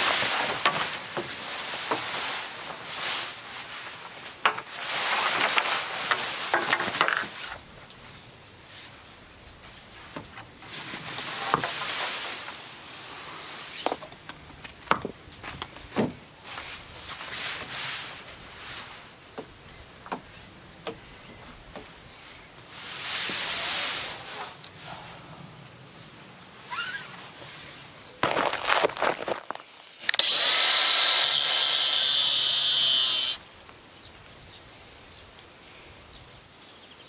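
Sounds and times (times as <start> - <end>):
fabric sail rustling: 0.0 - 7.6, 10.6 - 13.8, 26.6 - 29.6.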